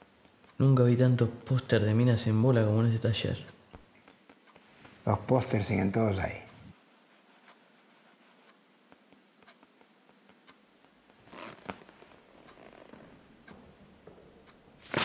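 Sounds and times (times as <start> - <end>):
soft rustle: 4.0 - 9.6, 11.0 - 15.0.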